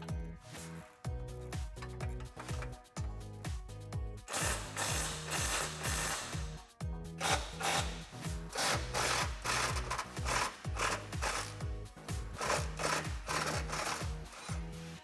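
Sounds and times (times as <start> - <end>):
background music with steady beat: 0.0 - 15.0
impact wrench rattling: 1.6 - 2.9, 4.3 - 6.3, 7.2 - 11.5, 12.4 - 14.6.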